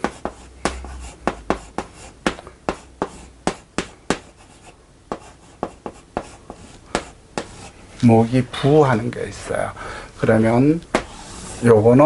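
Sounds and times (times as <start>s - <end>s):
chalk tapping on blackboard: 0.0s - 7.7s, 10.9s - 11.6s.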